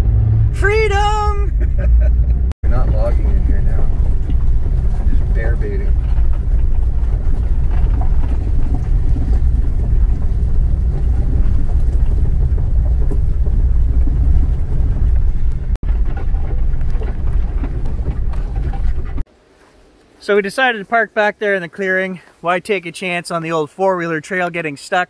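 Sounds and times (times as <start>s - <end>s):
vehicle engine and tyres rumbling: 0.0s - 20.0s.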